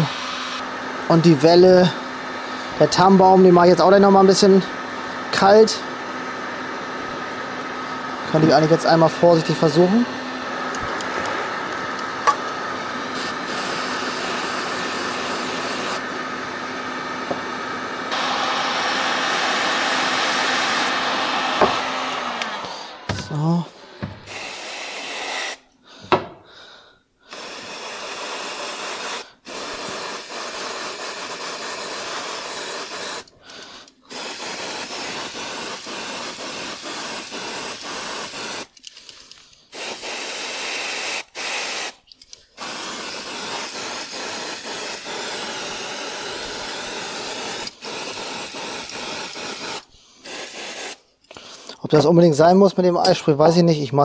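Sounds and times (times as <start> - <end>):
aerosol spray hissing: 13.1 - 16.0, 24.2 - 25.7, 27.2 - 38.8, 39.7 - 51.8.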